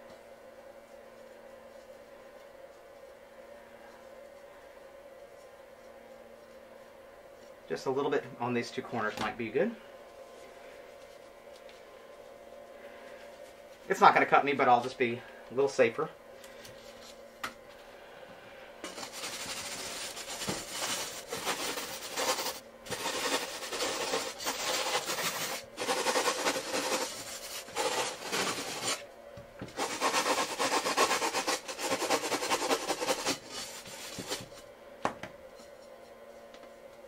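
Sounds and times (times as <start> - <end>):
sanding block rasping on glass: 18.9 - 29.0, 29.8 - 34.4.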